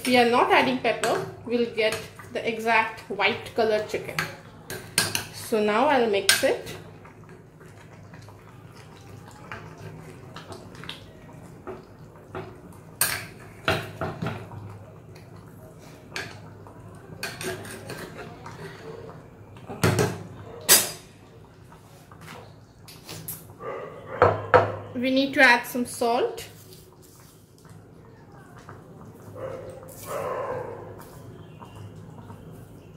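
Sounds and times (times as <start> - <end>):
metal spoon stirring and scraping: 17.2 - 19.0.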